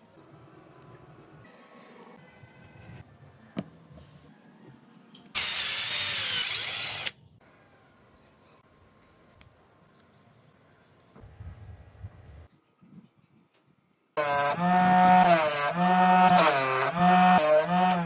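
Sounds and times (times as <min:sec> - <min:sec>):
cordless drill whining: 0:05.4 - 0:07.2.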